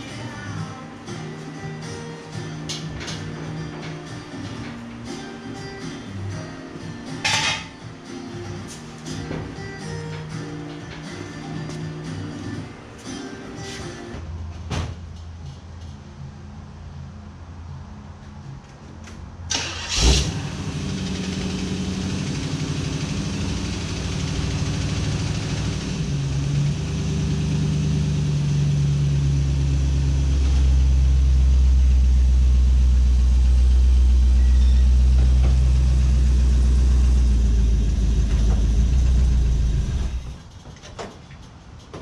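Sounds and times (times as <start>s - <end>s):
car engine starting and running: 19.4s - 40.6s.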